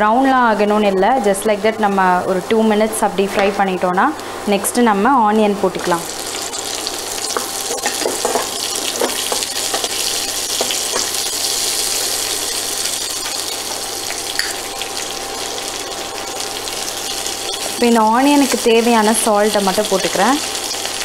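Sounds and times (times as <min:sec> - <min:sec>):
onions sizzling in oil: 0:05.1 - 0:21.0.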